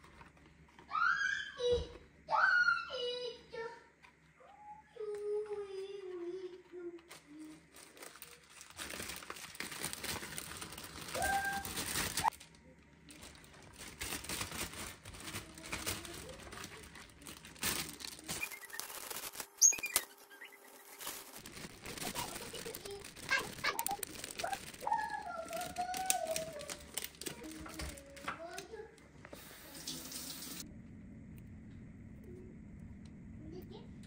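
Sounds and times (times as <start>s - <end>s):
rustling handling noise: 5.2s - 29.5s
short bird chirps: 19.6s - 20.8s.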